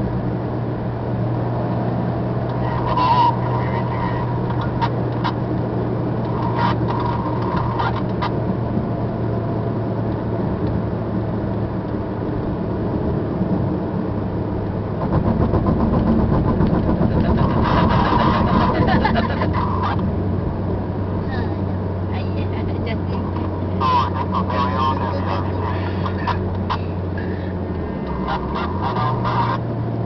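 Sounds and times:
car engine inside cabin: 0.0 - 30.0.

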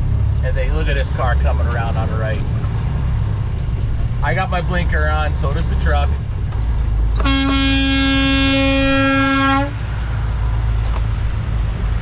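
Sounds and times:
truck horn blast: 7.2 - 9.9.

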